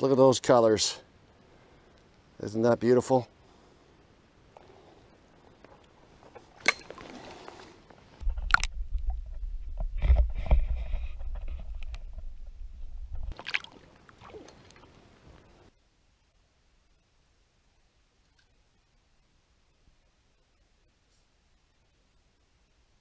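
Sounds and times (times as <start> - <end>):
muffled underwater rumble: 8.2 - 13.3
stream water splashing: 13.2 - 15.4.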